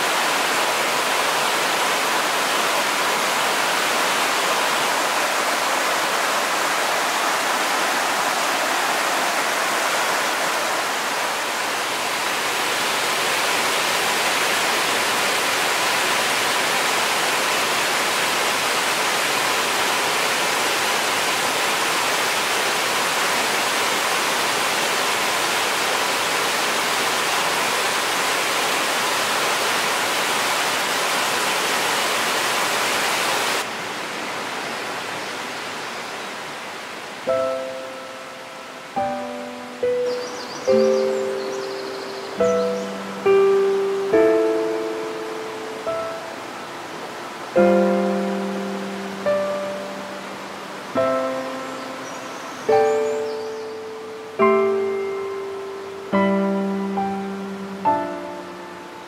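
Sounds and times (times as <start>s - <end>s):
waterfall rushing into pool: 0.0s - 59.0s.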